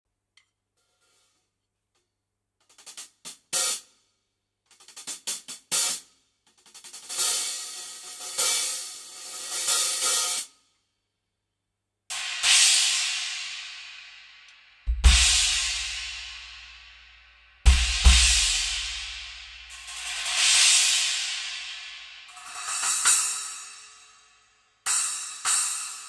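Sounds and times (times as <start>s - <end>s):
hi-hats played with sticks: 2.6s - 3.9s, 4.7s - 10.5s, 12.1s - 26.0s.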